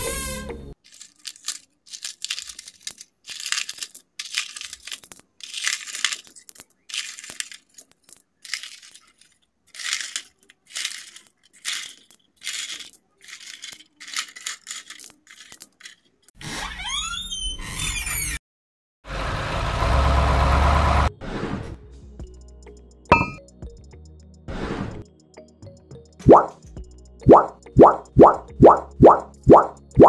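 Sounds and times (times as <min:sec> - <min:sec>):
pebbles clinking and rattling: 0:00.8 - 0:16.4.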